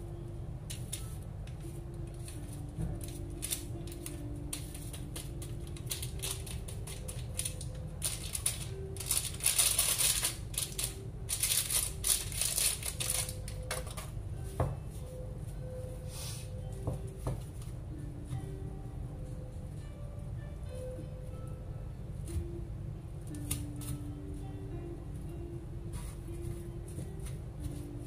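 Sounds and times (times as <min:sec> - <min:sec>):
plastic packaging crinkling: 0:05.2 - 0:14.0.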